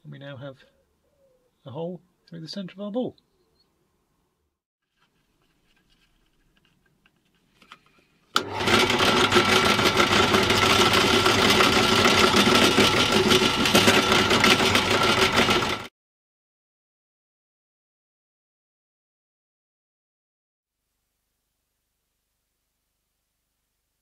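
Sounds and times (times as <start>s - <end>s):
drill bit drilling through wood: 8.4s - 15.9s
drill press motor running: 8.4s - 15.9s.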